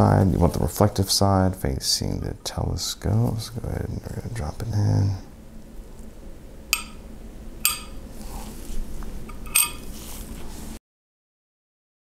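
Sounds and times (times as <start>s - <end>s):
small metal clinks: 9.3s - 9.9s.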